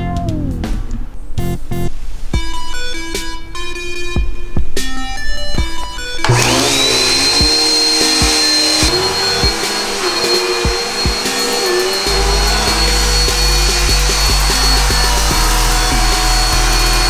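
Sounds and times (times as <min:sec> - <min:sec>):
vacuum cleaner motor whining: 0:05.6 - 0:17.0.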